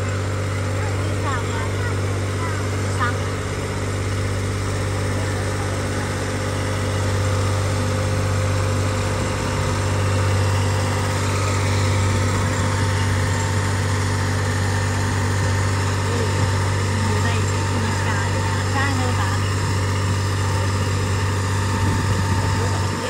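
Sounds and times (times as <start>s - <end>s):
tractor engine droning: 0.0s - 23.0s
wind on microphone: 21.7s - 23.0s.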